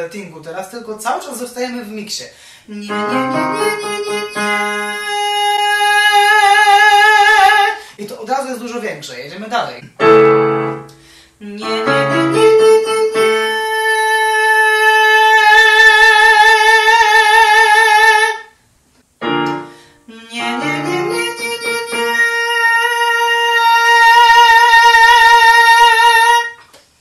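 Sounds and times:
digital piano chords: 2.8 - 5.1, 10.0 - 11.0, 19.2 - 22.4.

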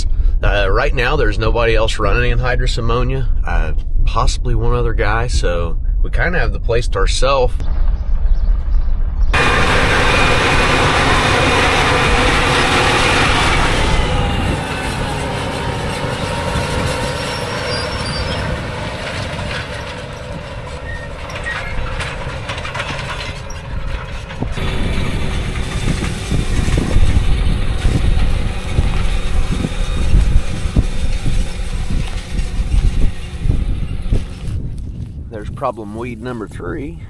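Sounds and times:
rough low rumble: 0.0 - 37.0
tractor running under load: 9.3 - 36.6.

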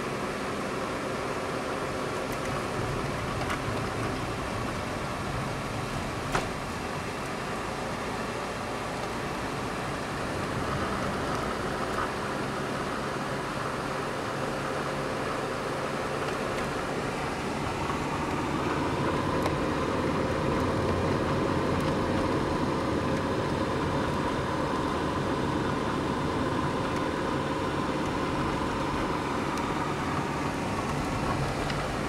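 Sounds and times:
car engine and tyre noise: 0.0 - 32.0.

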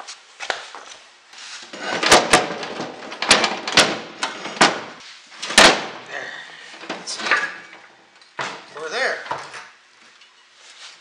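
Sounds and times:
metal clunks and scraping: 1.6 - 8.7.

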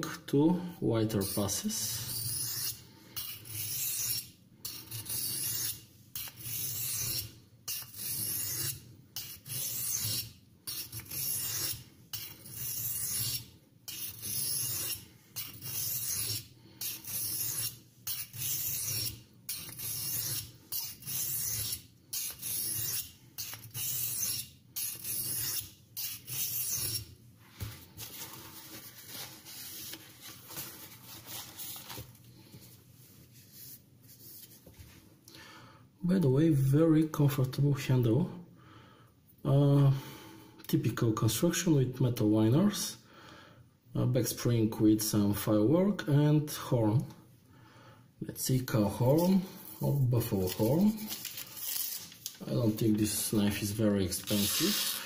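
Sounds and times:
knife blade scraping on sharpening stone: 1.8 - 27.1.

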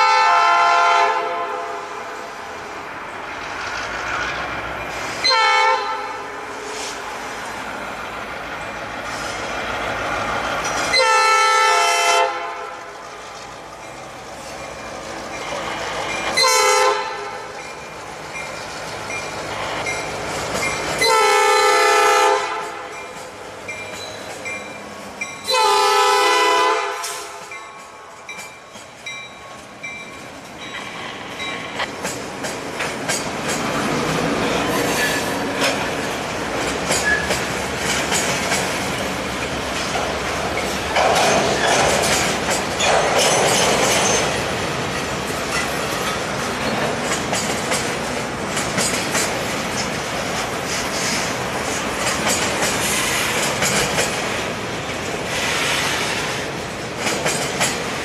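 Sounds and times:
locomotive air horn blasts: 0.0 - 2.0, 5.2 - 6.4, 10.9 - 12.8, 16.4 - 17.5, 21.0 - 22.9, 25.5 - 27.4
rumble of moving train: 0.0 - 58.0
wheels clattering on rail: 6.7 - 11.2, 12.3 - 58.0.

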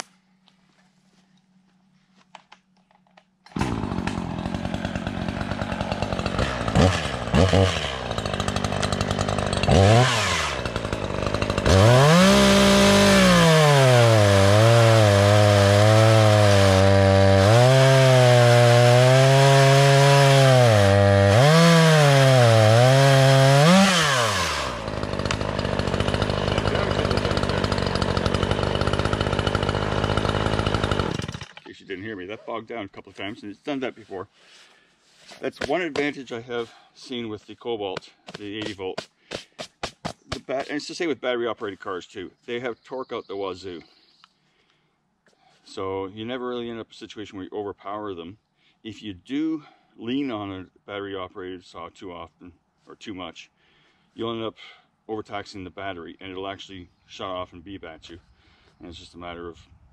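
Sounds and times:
chainsaw cutting log: 3.4 - 31.7, 35.4 - 36.3, 38.0 - 40.8.

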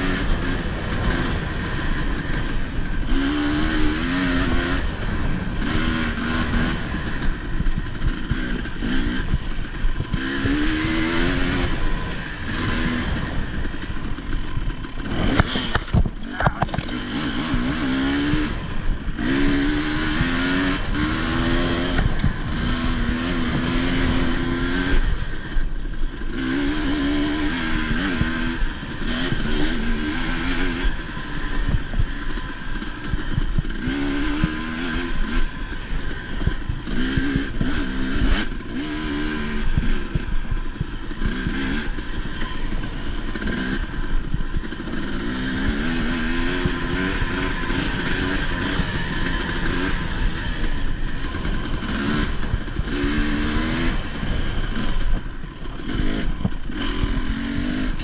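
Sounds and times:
dirt bike engine revving: 0.0 - 58.0
knocks and clatter from bike: 12.6 - 18.4.

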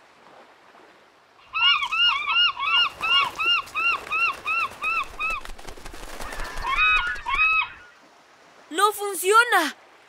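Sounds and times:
seagulls squawking: 1.5 - 8.0.

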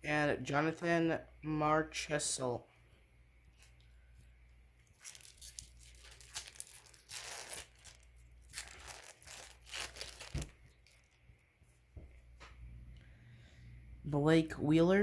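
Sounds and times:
foil pack tearing and crinkling: 4.9 - 11.2.

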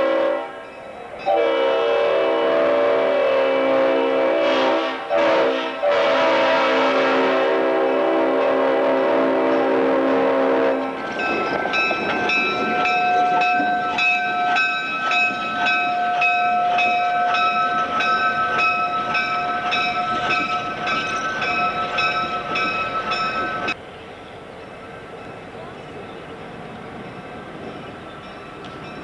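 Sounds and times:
locomotive horn chord: 0.0 - 0.6, 1.2 - 11.0
railroad bell ringing: 0.0 - 1.8, 7.6 - 29.0
train engine and wheel noise: 0.0 - 29.0.

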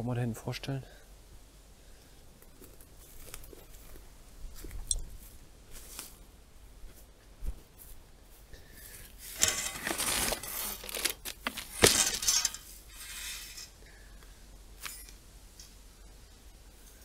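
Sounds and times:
wire cage rattling: 9.3 - 13.7
sharp metallic clank: 11.8 - 13.7.

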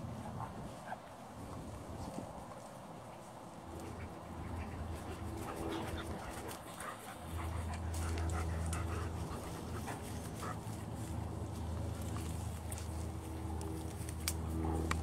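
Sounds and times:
light ticks and patter: 0.8 - 15.0
dog panting: 3.7 - 11.2.

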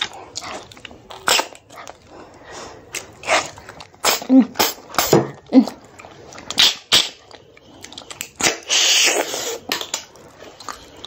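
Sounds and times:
wet eating smacks and sucks: 0.0 - 2.1, 2.9 - 11.0
loud slurp: 8.4 - 9.7.

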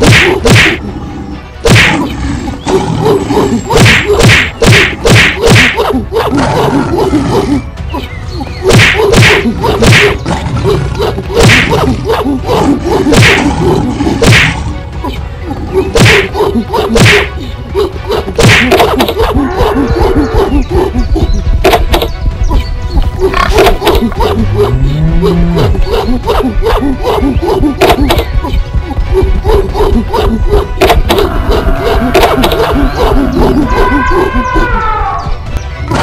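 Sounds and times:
cartoon punch hits and swishes: 0.0 - 0.8, 1.6 - 2.0, 3.7 - 6.0, 8.7 - 10.2, 11.3 - 13.6, 14.2 - 14.6, 15.9 - 17.3, 18.1 - 19.4.

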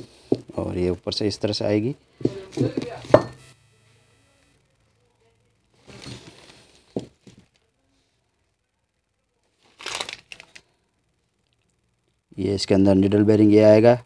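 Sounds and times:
plastic wrapping crinkling: 9.6 - 10.7.

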